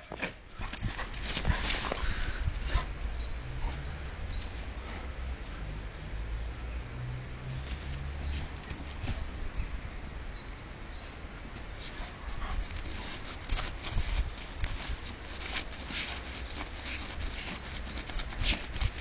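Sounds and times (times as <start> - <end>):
dog snuffling and scrabbling: 11.7 - 19.0.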